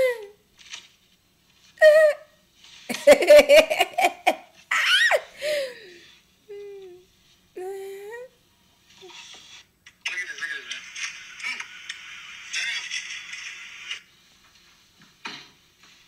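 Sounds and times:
woman laughing hard: 2.9s - 5.7s.

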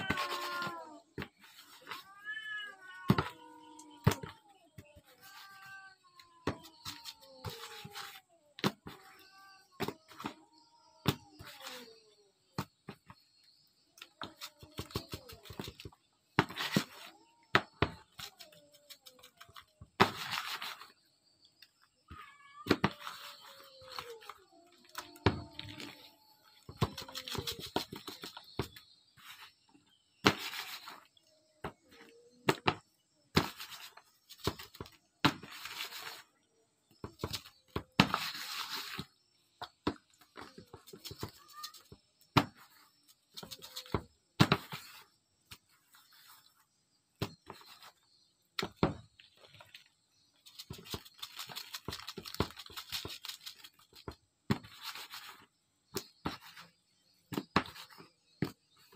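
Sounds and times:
salt shaken from plastic bag: 50.5s - 53.9s.

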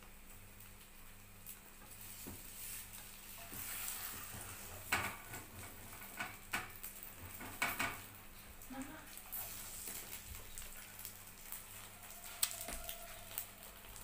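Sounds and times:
egg sizzling in a frying pan: 0.0s - 14.0s
spatula scraping and knocking pan: 2.2s - 8.1s.

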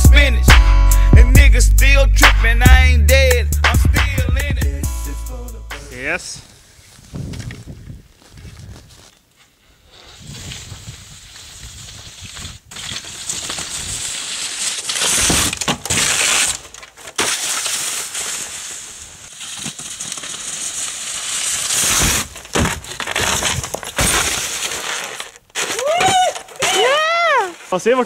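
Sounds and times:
crunching and scraping in snow: 6.0s - 28.0s.

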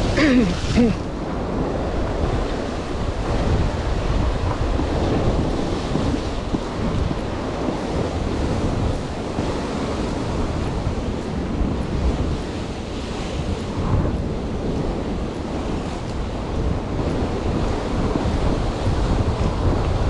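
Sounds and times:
ocean surf breaking on rocks: 0.0s - 20.0s
wind buffeting microphone: 0.0s - 20.0s.

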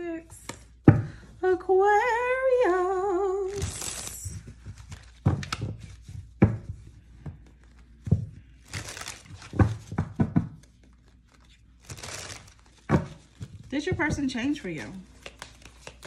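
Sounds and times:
cards rustling swish: 3.5s - 6.3s, 8.6s - 9.9s, 10.7s - 13.6s, 14.6s - 16.0s
cards tapping and knocking: 3.5s - 16.0s.

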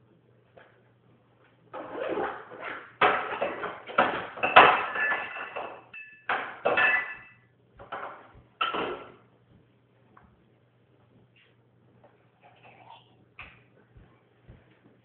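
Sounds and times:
dishes and utensils clattering: 1.8s - 9.2s.

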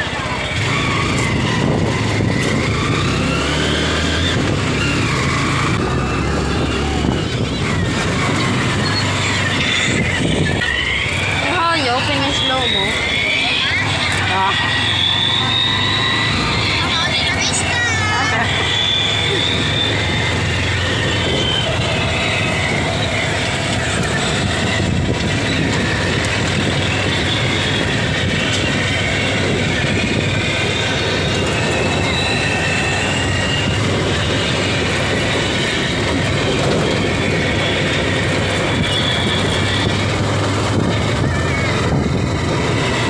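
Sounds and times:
motorcycle engine running: 0.0s - 43.0s
road noise: 0.0s - 43.0s.

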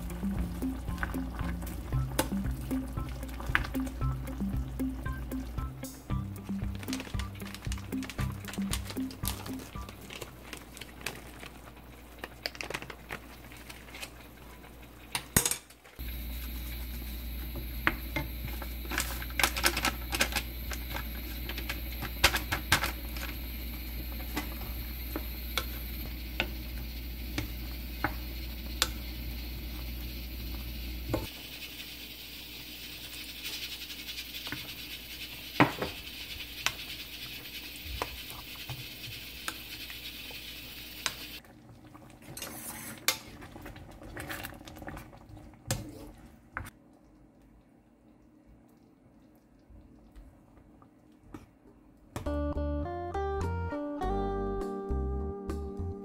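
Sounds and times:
curry bubbling: 0.0s - 52.1s
spoon scraping frying pan: 42.3s - 43.3s.

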